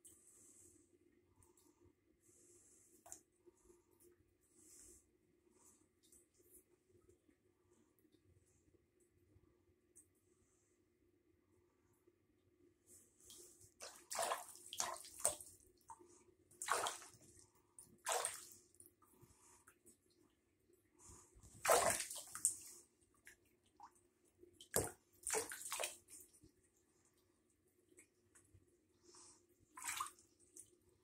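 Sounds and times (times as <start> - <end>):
water splashing in a bathtub: 2.9 - 4.8, 12.9 - 31.0.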